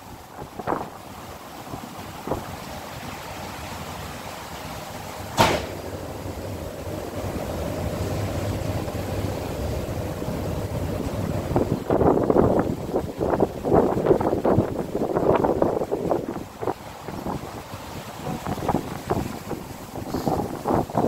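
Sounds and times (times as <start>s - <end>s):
ship engine rumble and hum: 0.0s - 21.0s
sharp knock: 5.4s - 5.8s.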